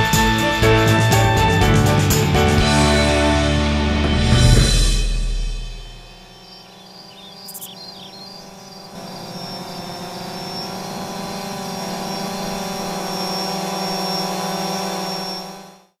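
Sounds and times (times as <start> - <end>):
drone rotors buzzing: 4.6 - 16.0.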